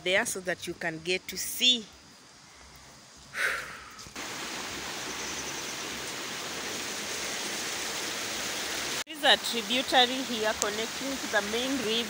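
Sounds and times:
stream rushing: 4.2s - 12.0s.

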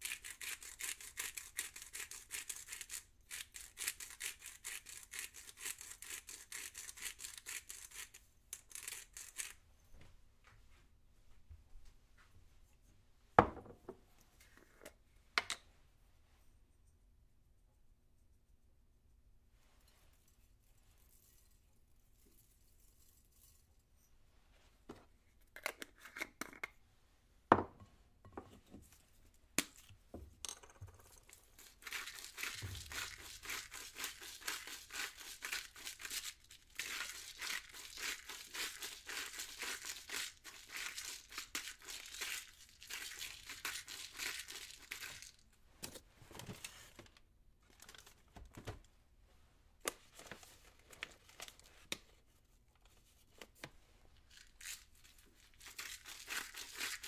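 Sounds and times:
packaging crinkling and tearing: 31.6s - 45.4s, 47.6s - 48.3s.

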